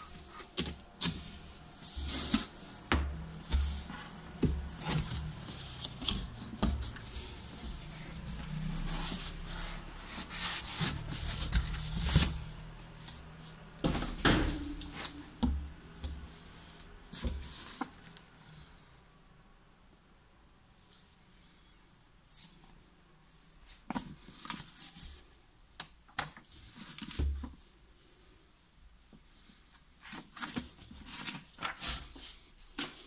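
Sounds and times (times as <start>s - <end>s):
paper leaflet rustling: 0.0s - 15.3s, 30.0s - 33.0s
cardboard scraping and rustling: 0.0s - 15.5s, 30.0s - 33.0s.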